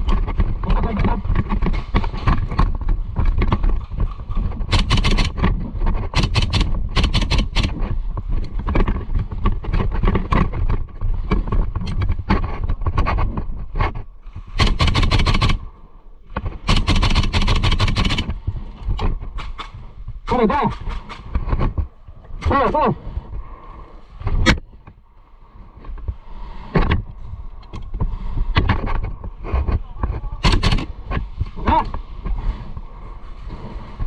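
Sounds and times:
airsoft guns firing bursts: 0:04.7 - 0:05.4, 0:06.2 - 0:07.8, 0:14.6 - 0:15.6, 0:16.6 - 0:18.3, 0:30.4 - 0:31.0.

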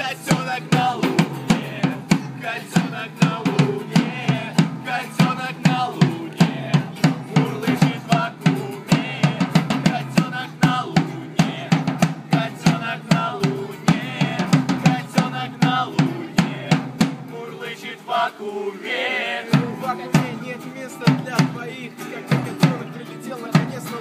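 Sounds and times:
acoustic guitars strummed: 0:00.0 - 0:24.0
drum struck with sticks: 0:00.3 - 0:17.3.

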